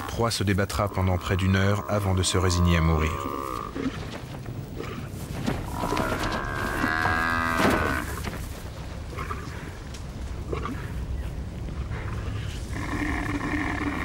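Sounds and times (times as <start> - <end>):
buffalo bellowing: 5.7 - 8.2.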